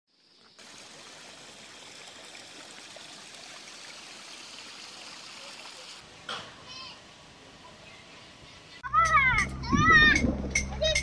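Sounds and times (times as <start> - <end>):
flowing water rushing: 0.2 - 6.2.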